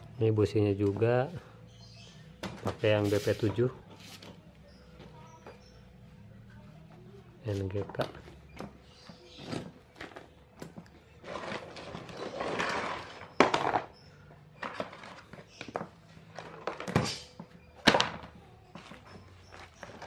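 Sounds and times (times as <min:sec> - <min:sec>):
scraping: 0:11.2 - 0:14.0.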